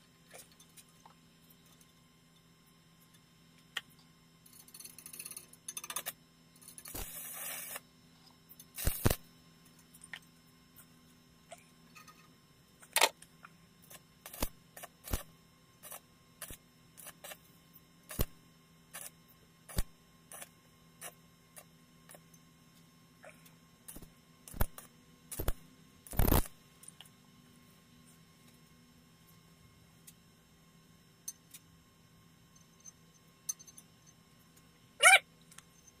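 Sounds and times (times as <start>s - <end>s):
welding arc crackling: 6.0s - 7.9s, 8.7s - 9.3s, 13.8s - 17.5s, 18.1s - 22.2s, 23.9s - 26.6s.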